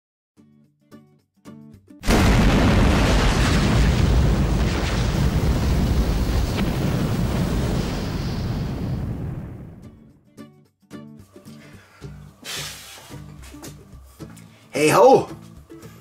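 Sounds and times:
explosion boom with rushing flames: 2.0 - 10.0.

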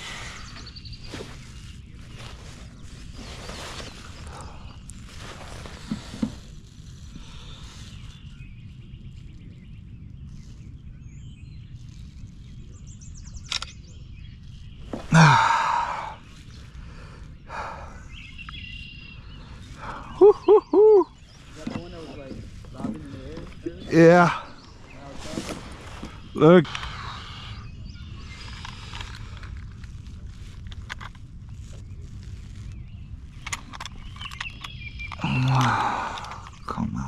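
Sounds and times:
outdoor background noise on water: 0.0 - 23.8, 24.7 - 36.7
loud breathy sigh: 15.1 - 16.2, 35.2 - 36.5
handling rustles and clicks: 28.5 - 35.2.

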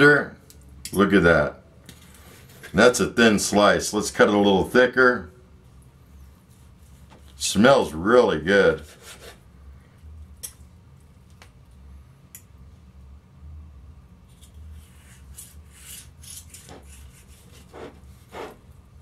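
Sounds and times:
knife sawing through meat: 14.8 - 18.6.

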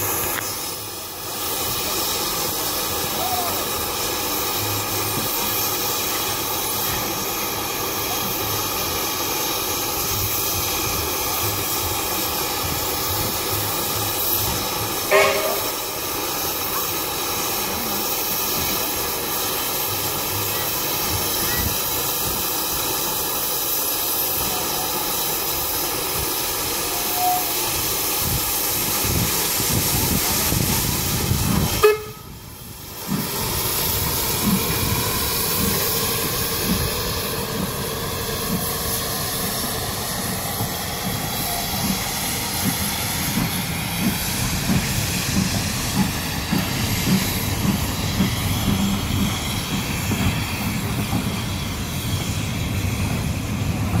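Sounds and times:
steam hissing: 0.0 - 54.0
sharp bang: 15.1 - 16.0
train wheels knocking: 33.0 - 54.0.

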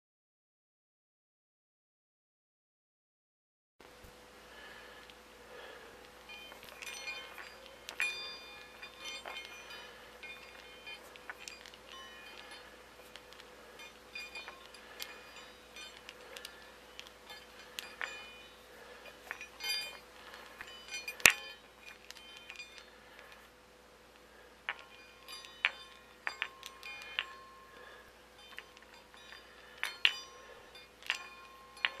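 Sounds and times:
metal balls clicking: 4.6 - 32.0
bell-like chime ring: 5.6 - 23.4, 24.3 - 32.0.

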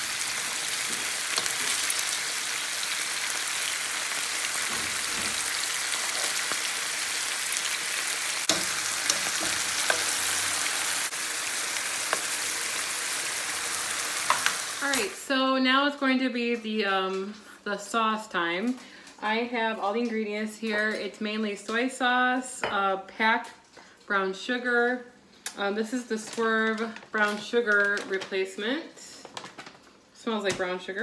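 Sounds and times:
beef sizzling in oil: 0.0 - 15.2.

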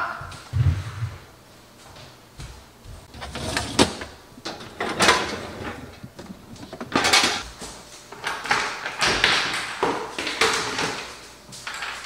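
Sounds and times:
dishes clattering in dishwasher rack: 3.2 - 7.4.

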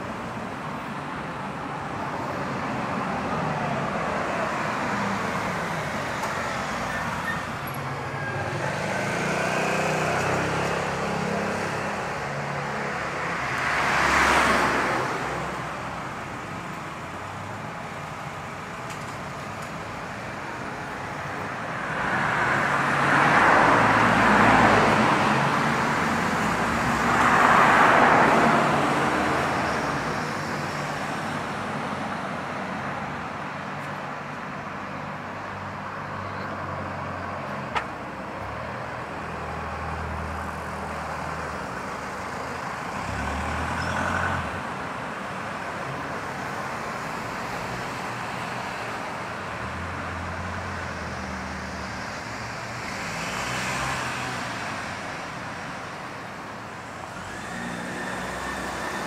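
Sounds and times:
low hum of traffic: 0.0 - 59.0
car passing by: 8.5 - 12.3.

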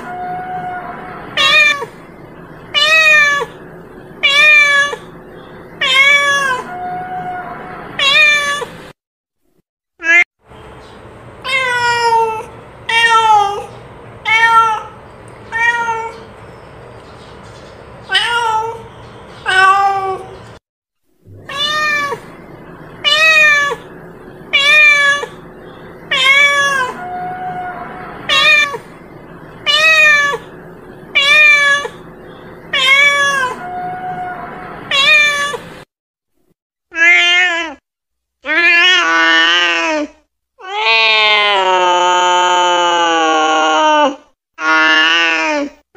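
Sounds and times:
cat meowing: 0.0 - 2.0, 2.7 - 3.6, 4.2 - 5.2, 5.8 - 8.8, 11.4 - 16.3, 18.1 - 20.4, 21.3 - 25.4, 26.0 - 32.0, 32.7 - 35.7.

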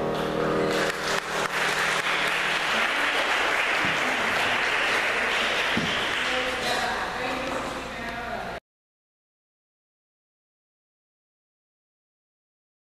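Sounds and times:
music: 0.0 - 5.8
audience applauding: 0.6 - 7.4.

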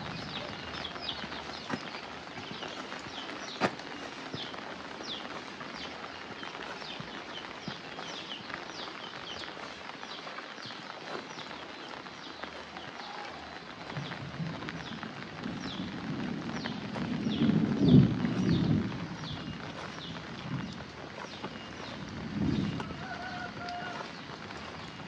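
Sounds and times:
rain hiss: 0.0 - 25.0
bird chirping: 16.6 - 25.0.

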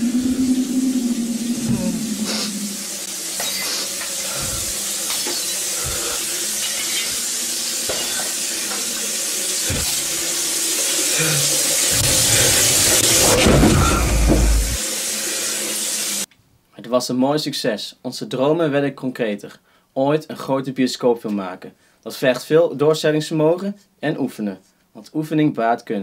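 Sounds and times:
deep rumble: 0.0 - 3.0, 11.9 - 14.8
steady hissing noise: 0.0 - 16.3
dull low thumps: 12.0 - 14.8.

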